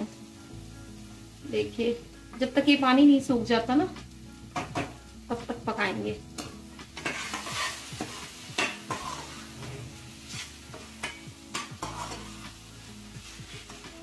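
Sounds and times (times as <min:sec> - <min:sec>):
food sizzling: 0:00.0 - 0:14.0
spatula scraping metal pan: 0:06.4 - 0:12.6.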